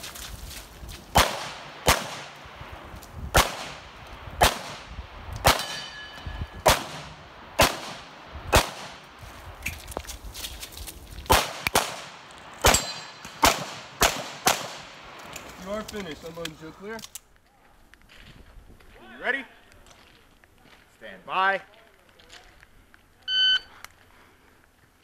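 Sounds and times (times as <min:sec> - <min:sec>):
pistol shots: 0:01.1 - 0:02.4, 0:03.3 - 0:09.0, 0:11.3 - 0:15.2
metallic ringing: 0:05.6 - 0:06.6, 0:12.7 - 0:13.4.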